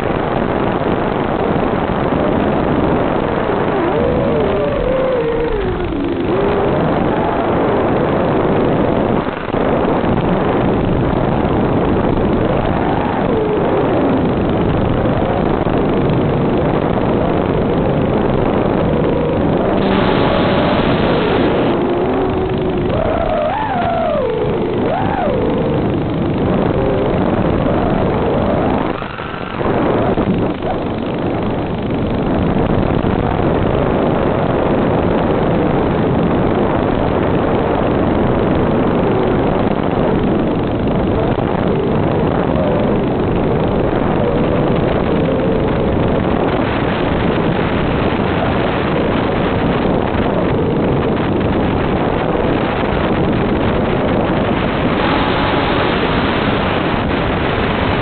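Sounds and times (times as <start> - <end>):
rushing wind: 0.0 - 58.0
faint wavering hum: 1.2 - 33.4, 48.5 - 58.0
quadcopter motors buzzing: 18.9 - 30.5.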